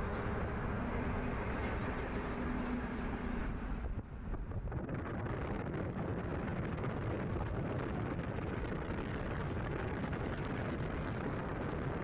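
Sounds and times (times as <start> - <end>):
trucks rumbling on highway: 0.0 - 12.0.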